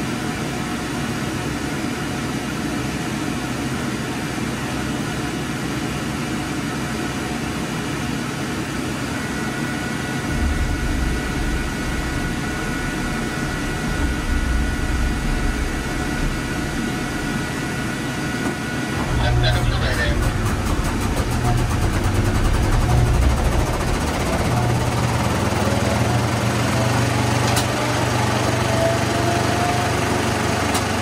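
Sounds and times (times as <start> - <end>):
thin steady whine: 0.0 - 28.6
machinery humming: 0.0 - 31.0
deep low rumble: 10.2 - 26.2.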